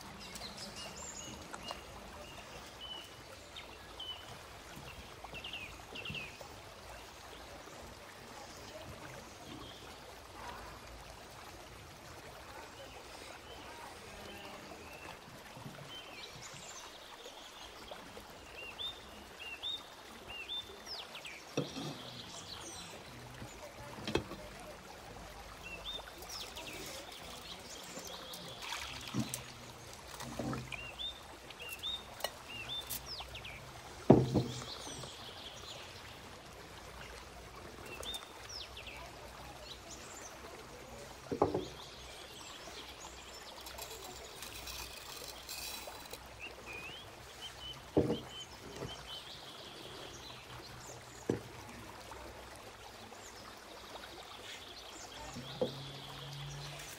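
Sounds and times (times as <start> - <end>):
small birds chirping: 25.6 - 36.2, 37.8 - 51.3.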